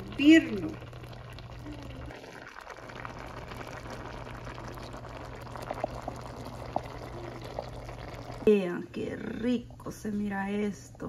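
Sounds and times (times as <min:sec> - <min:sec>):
sauce simmering in pot: 0:00.0 - 0:08.7.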